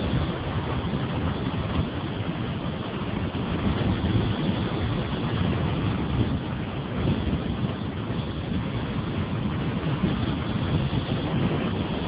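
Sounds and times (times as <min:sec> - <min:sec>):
vehicle rumbling on road: 0:00.0 - 0:12.0
wind buffeting microphone: 0:00.0 - 0:12.0.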